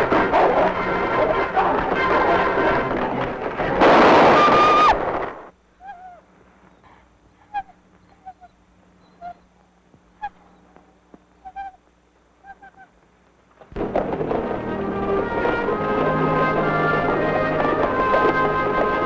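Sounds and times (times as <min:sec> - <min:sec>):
dog whimpering and whining: 0:07.5 - 0:09.5
orchestral music with brass: 0:13.8 - 0:19.0.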